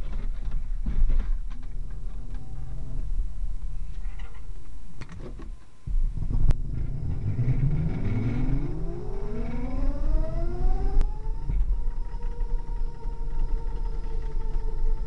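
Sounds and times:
electric motors whining: 5.9s - 15.0s.

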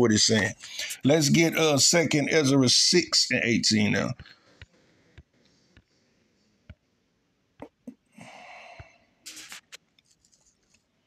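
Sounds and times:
person breathing: 0.6s - 1.0s, 8.1s - 9.2s
person sniffing: 0.6s - 1.0s.

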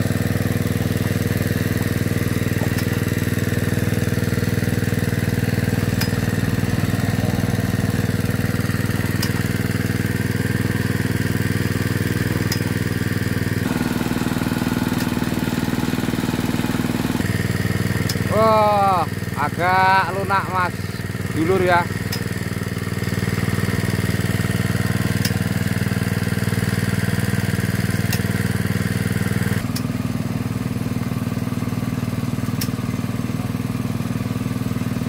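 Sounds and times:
water pump engine running: 0.0s - 35.0s.

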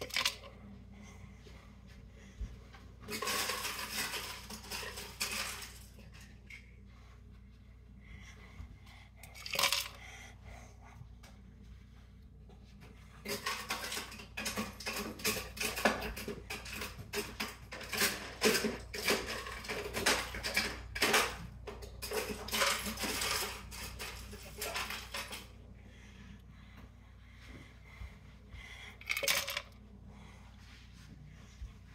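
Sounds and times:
ice cubes clattering and clinking: 3.1s - 5.9s, 9.4s - 10.0s, 22.0s - 25.4s, 29.0s - 29.7s.

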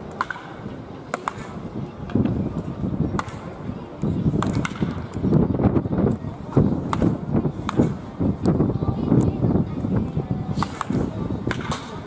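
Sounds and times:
bat cracking ball: 0.1s - 1.6s, 4.4s - 5.0s, 10.6s - 12.0s.

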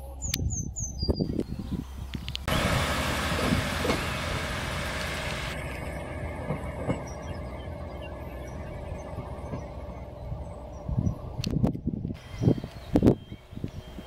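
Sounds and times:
diesel train engine humming: 1.8s - 14.0s
dull rumble with knocks: 2.5s - 11.8s.

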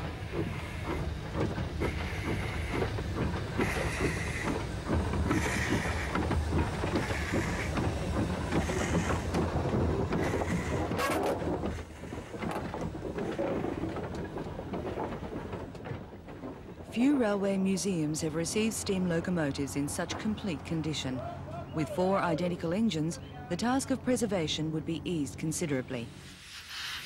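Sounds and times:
steam locomotive exhaust puffs: 0.0s - 12.5s, 26.1s - 27.0s
knocks and clanks: 0.0s - 16.9s
wheels clicking over rail joints: 0.0s - 25.6s.

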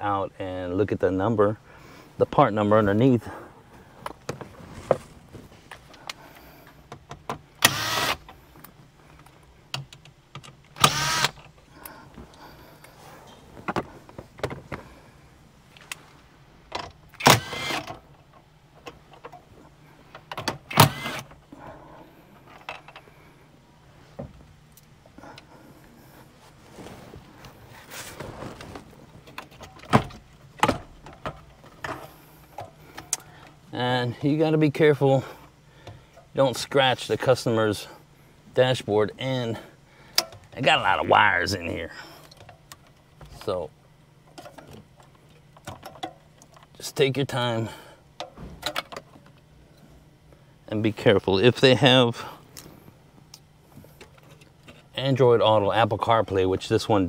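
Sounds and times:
cordless power driver whirring: 7.6s - 8.3s, 10.8s - 11.4s, 17.2s - 17.9s, 20.7s - 21.3s.

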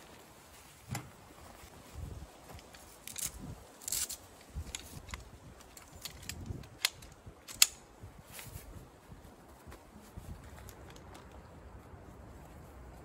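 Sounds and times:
tripod legs clicking: 2.6s - 7.9s
tripod legs snapping: 2.6s - 7.9s.

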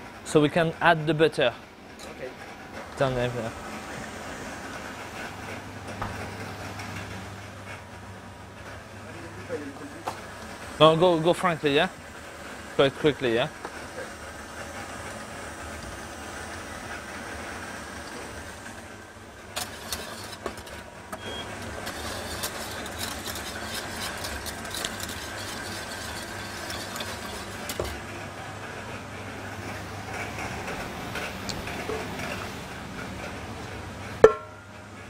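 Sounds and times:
stand mixer motor running: 21.5s - 28.0s.

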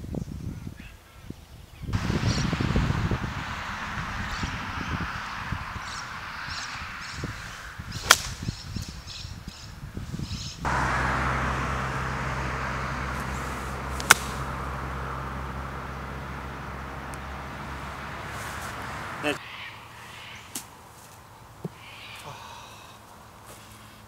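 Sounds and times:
golf club striking ball: 8.0s - 8.4s, 10.7s - 18.8s
steady low hum: 10.6s - 19.4s.

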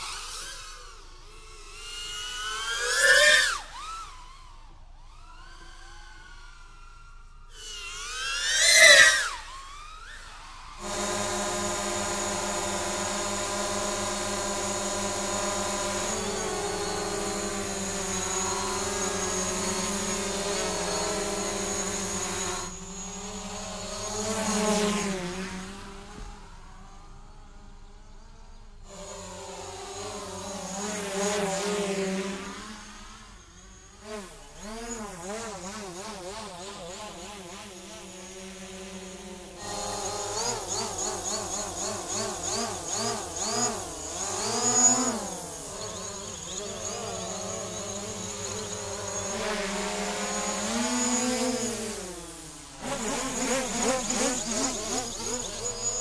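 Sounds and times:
drone buzzing hum: 0.0s - 56.0s.

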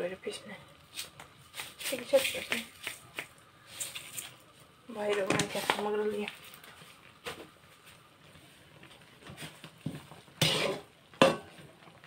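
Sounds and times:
metal ladle scraping a wok: 10.3s - 11.6s.

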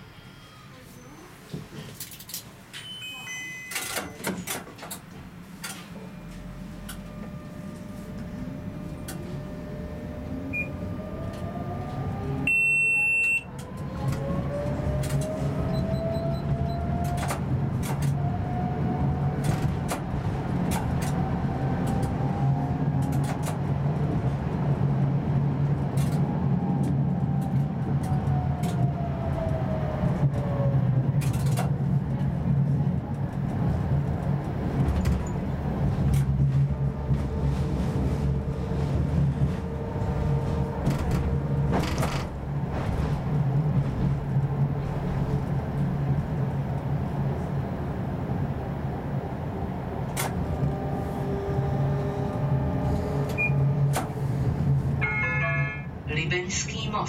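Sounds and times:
wheels humming on rails: 0.0s - 57.0s
tram motor whine: 3.7s - 56.1s
loud electronic beep: 12.5s - 13.5s.

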